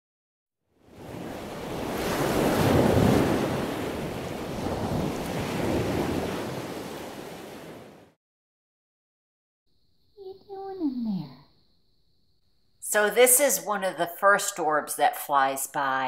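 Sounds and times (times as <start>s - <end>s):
ocean waves breaking: 0.8s - 8.2s.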